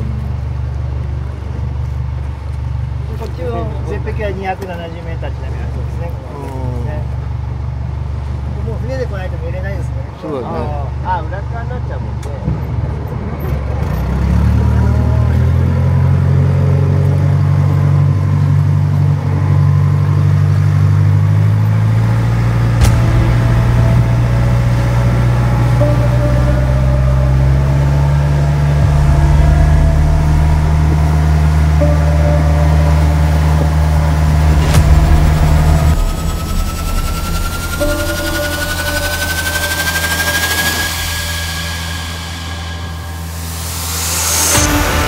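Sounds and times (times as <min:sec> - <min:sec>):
boat engine droning: 0:14.1 - 0:45.0.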